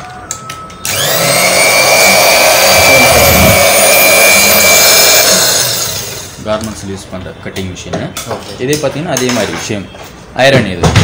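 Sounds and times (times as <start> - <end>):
cutting machine motor whine: 0.8 - 6.4.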